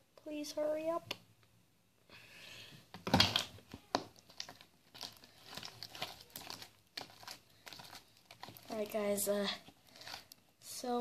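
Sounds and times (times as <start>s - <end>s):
plastic bottle crinkling: 2.9s - 10.5s.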